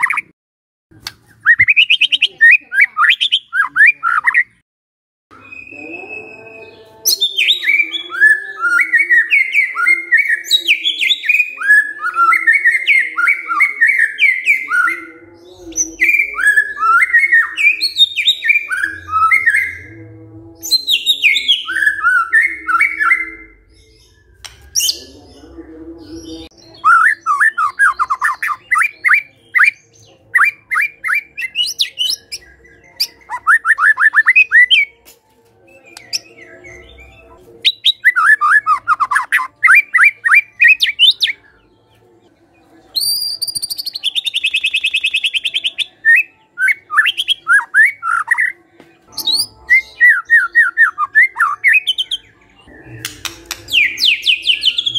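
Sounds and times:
bird singing whistled notes: 0:01.3 - 0:04.6, 0:05.3 - 0:15.2, 0:26.4 - 0:35.0, 0:35.7 - 0:41.7, 0:42.9 - 0:54.9.

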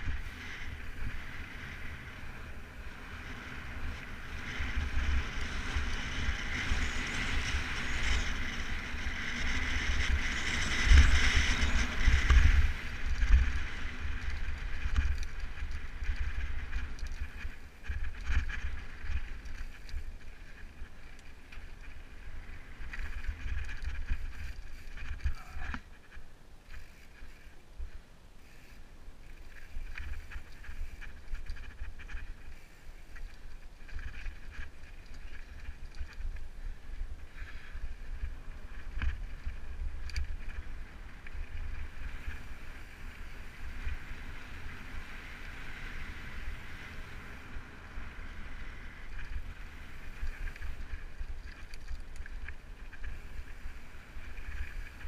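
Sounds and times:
wind on microphone: 0:00.0 - 0:21.0
bike tyres crunching on gravel: 0:00.0 - 0:55.0.

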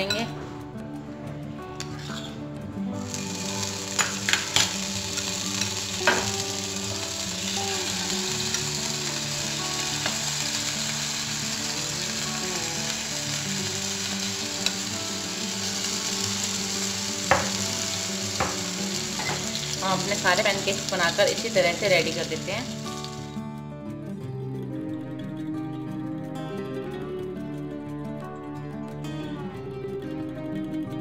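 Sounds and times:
butter sizzling in frying pan: 0:03.0 - 0:23.4.

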